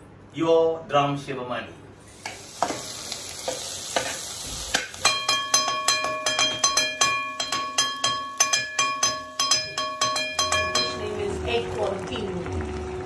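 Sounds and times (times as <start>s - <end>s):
food sizzling in pan: 2.0s - 13.0s
ladle striking metal pan: 4.7s - 11.4s.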